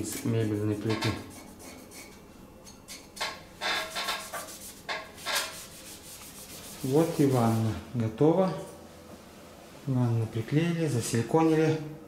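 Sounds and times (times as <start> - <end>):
cloth wiping glass: 4.0 - 7.8.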